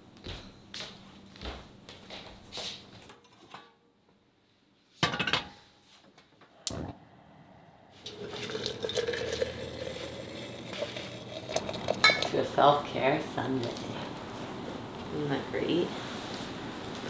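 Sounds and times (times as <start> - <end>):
kitchen clatter: 5.0 - 5.6, 12.0 - 12.5
water pouring into glass jar: 8.0 - 12.4.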